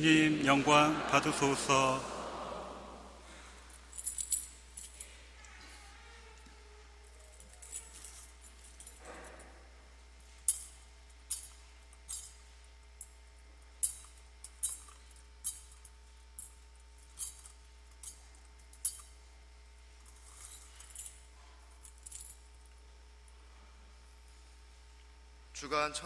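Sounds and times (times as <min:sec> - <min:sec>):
thurible chains clinking: 0:03.6 - 0:05.2, 0:07.0 - 0:09.6, 0:10.2 - 0:13.2, 0:13.8 - 0:19.2, 0:20.0 - 0:22.7.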